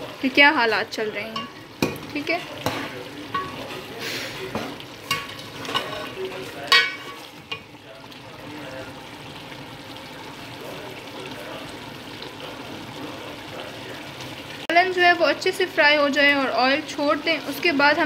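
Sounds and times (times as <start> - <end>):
curry sizzling in oil: 0.0 - 18.0
metal spoon scraping a pot: 1.3 - 7.7.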